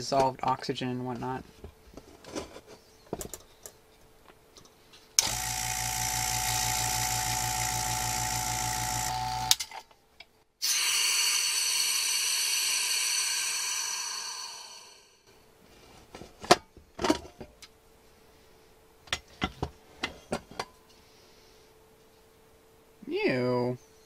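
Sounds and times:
vacuum pump humming: 5.2s - 9.6s
air hissing through valve: 10.6s - 15.2s.

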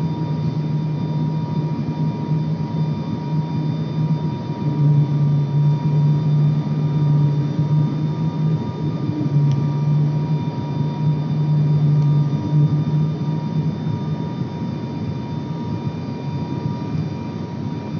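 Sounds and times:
high engine whine: 0.0s - 17.9s
propeller engine drone: 0.0s - 17.9s.

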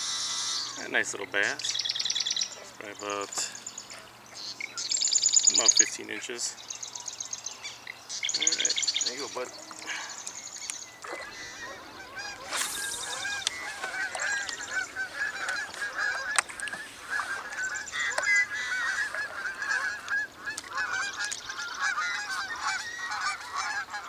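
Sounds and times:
geese honking: 11.0s - 24.0s.

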